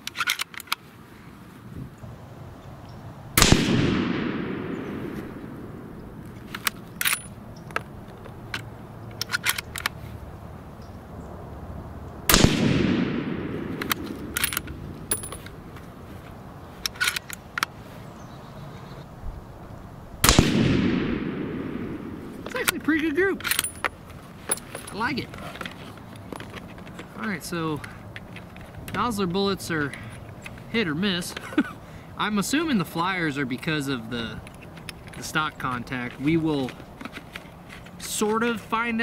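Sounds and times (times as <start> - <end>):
rifle shots with echo: 3.4 - 6.2, 12.3 - 15.3, 20.2 - 22.5
rifle bolt clicking: 3.4 - 10.0, 12.3 - 15.6.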